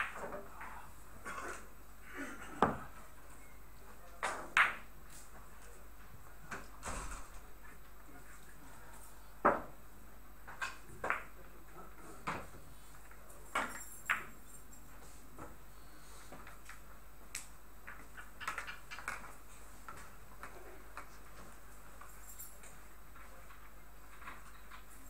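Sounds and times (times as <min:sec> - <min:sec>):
billiard balls clicking: 0:16.4 - 0:21.4.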